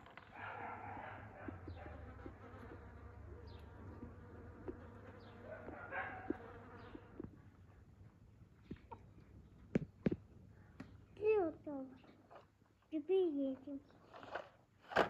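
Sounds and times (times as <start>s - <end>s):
bees buzzing: 1.2s - 7.3s.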